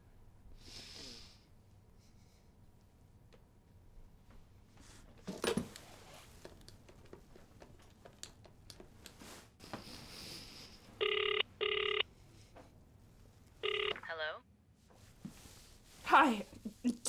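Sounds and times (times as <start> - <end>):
telephone ringing: 11.0 - 12.1, 13.6 - 14.1.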